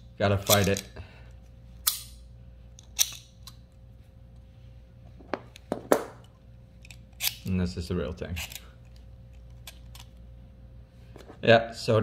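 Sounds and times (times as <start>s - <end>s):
pliers mechanism clicking: 0.4s - 0.9s, 1.8s - 2.1s, 2.8s - 3.6s, 5.5s - 7.5s
pliers knocking on table: 5.2s - 6.2s.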